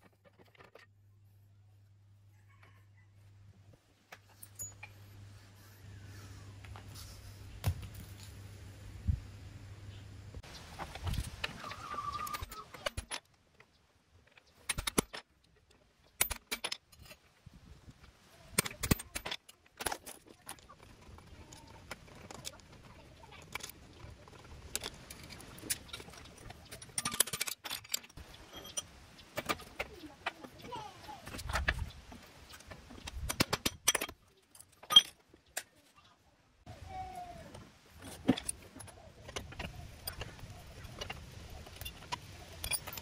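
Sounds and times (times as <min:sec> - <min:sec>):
bird chirp: 0:11.5 - 0:12.8.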